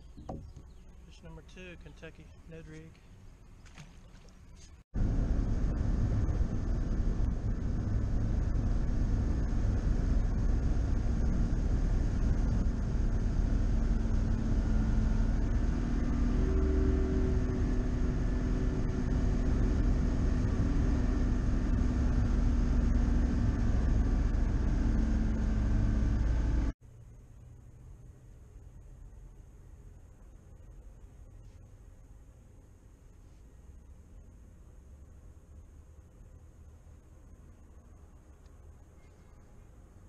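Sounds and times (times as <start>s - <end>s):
outboard motor droning: 3.7s - 26.7s.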